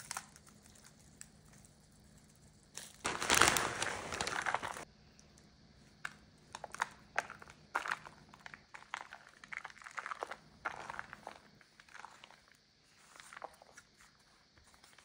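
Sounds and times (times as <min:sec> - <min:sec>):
foil pan crinkling: 0:02.8 - 0:04.8.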